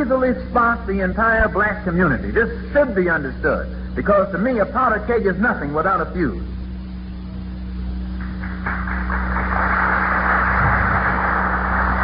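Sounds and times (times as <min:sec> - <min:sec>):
steady low hum: 0:00.0 - 0:12.0
audience applause: 0:08.2 - 0:12.0.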